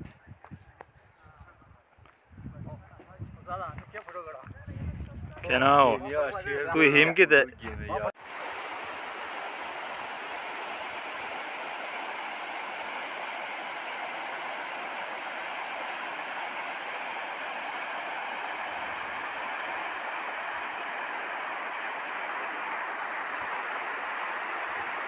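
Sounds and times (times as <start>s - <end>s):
river rushing over rocks: 8.2s - 25.0s.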